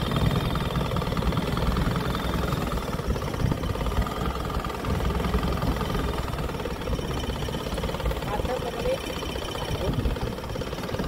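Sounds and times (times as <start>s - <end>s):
boat engine throbbing: 0.0s - 11.0s.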